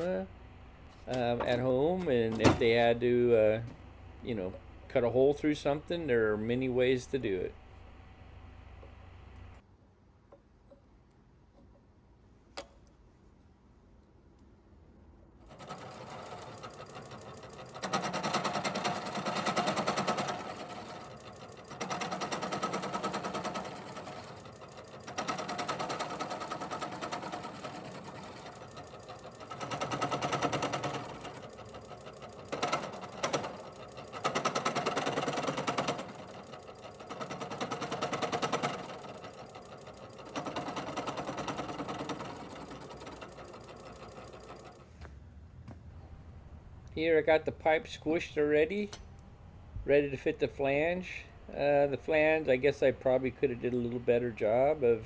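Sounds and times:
spindle running: 15.4 - 44.9
milling machine cutting steel: 15.5 - 44.7.

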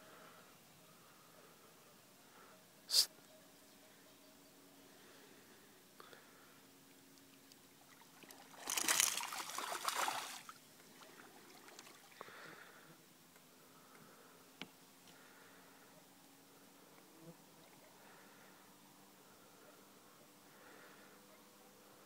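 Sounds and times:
water sloshing: 7.8 - 12.2
fish splashing water: 7.9 - 12.1.

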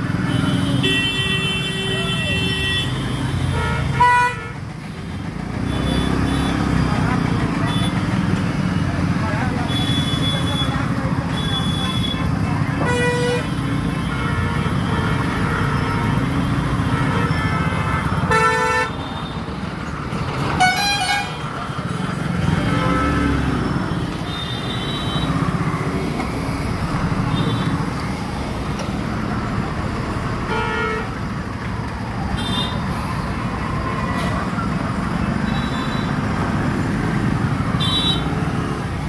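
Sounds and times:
engines rumbling: 0.0 - 39.0
vehicle horns honking: 0.3 - 4.6, 9.7 - 19.4, 20.5 - 21.4, 24.2 - 25.5, 30.5 - 31.2, 32.3 - 32.8, 35.4 - 36.2, 37.7 - 38.4.

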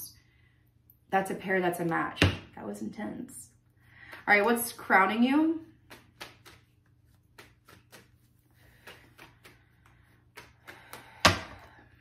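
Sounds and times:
cards being shuffled: 5.7 - 11.1.

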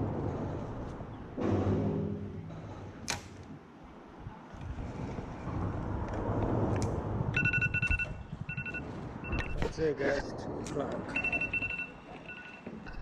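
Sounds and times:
low rumbling noise: 0.0 - 13.0
electronic phone ringing tone: 7.4 - 9.6, 11.1 - 12.8.

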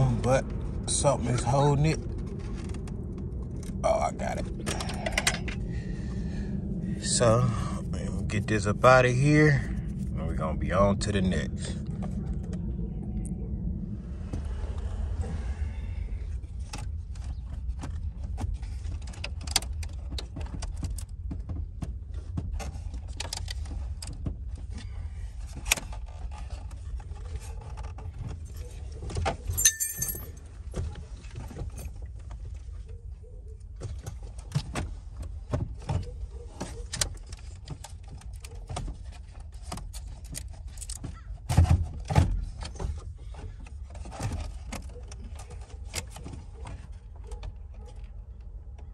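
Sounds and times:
steady low rumble: 0.0 - 19.2.

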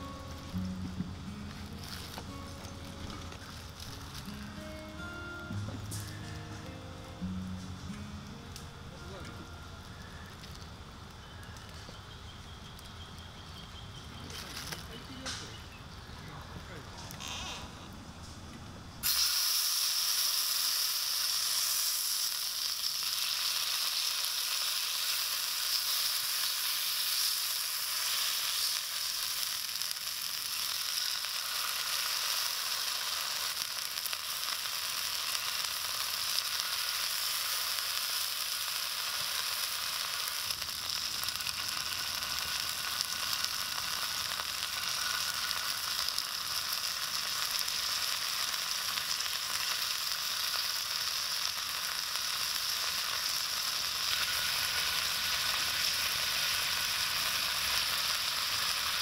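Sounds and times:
meat sizzling in hot oil: 19.0 - 59.0.

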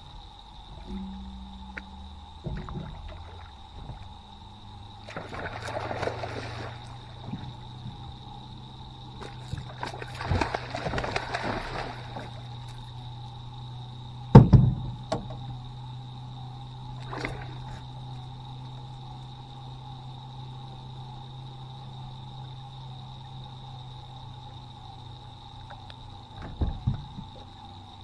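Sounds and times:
steady hum: 0.0 - 28.0
water splashing: 0.7 - 4.3, 4.9 - 8.3, 9.0 - 12.9, 17.0 - 17.9
fish thrashing in water: 4.9 - 13.0, 17.0 - 18.0
loud thump: 14.3 - 15.2.

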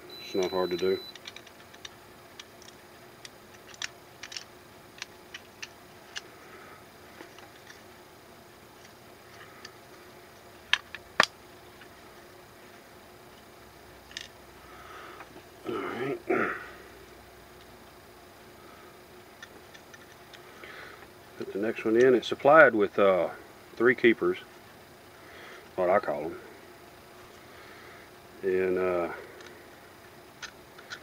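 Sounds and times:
faint steady hum: 0.0 - 31.0
small metal parts clicking: 1.0 - 6.3, 30.4 - 31.0.

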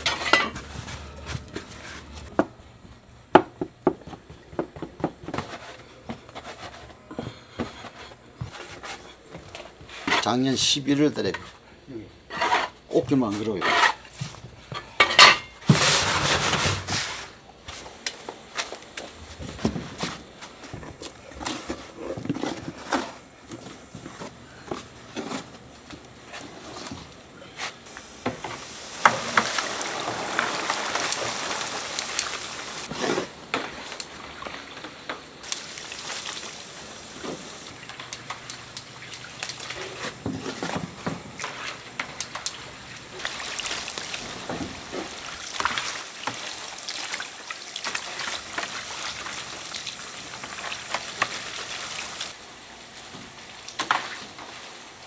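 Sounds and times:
dough sizzling in hot oil: 27.9 - 32.9, 35.4 - 40.0, 41.4 - 55.0.

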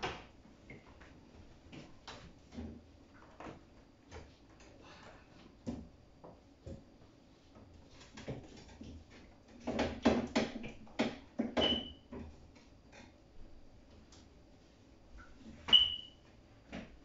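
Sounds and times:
knocks and clatter in fridge: 8.1 - 12.4.

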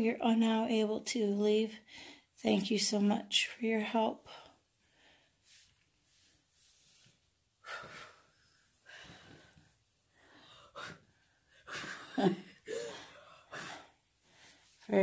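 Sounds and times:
person breathing audibly: 4.2 - 11.9, 12.7 - 14.9.

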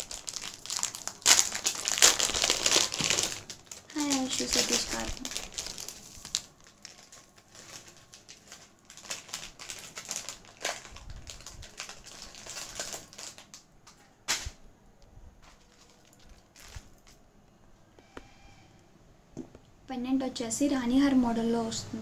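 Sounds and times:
soft plastic rustling: 0.0 - 18.0
beads clicking and rattling: 15.4 - 17.2.

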